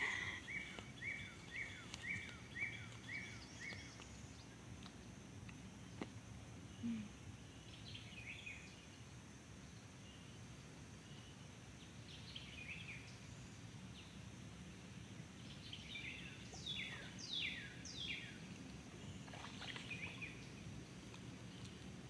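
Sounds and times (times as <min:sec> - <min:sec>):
birds calling: 0:00.0 - 0:04.6.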